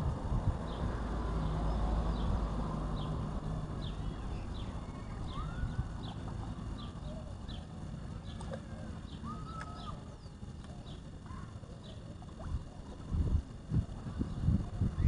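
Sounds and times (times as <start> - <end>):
bird high downward chirp: 3.8 - 12.1
other birds calling: 3.9 - 12.5.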